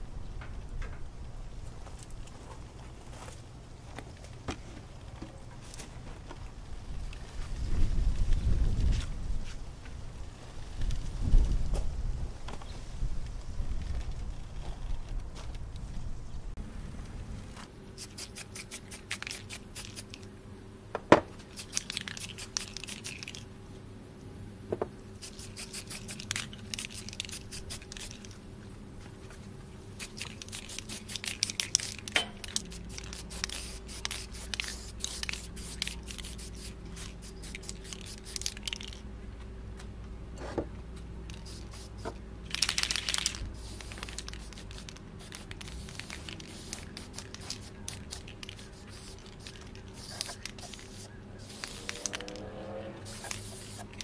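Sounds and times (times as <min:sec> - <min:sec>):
spray paint hissing: 0:17.7 - 0:39.0, 0:41.3 - 0:54.0
spray can ball rattling: 0:17.8 - 0:20.4, 0:21.0 - 0:23.8, 0:25.1 - 0:28.6, 0:29.4 - 0:39.0, 0:41.3 - 0:54.0.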